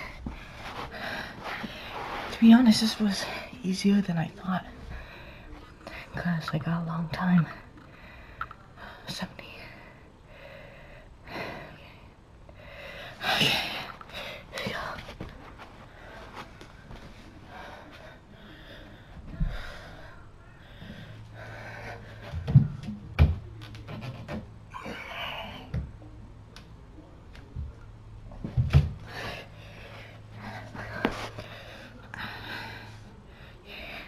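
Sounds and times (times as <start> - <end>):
heavy panting breaths: 0.0 - 3.6, 9.7 - 22.4, 29.0 - 34.0.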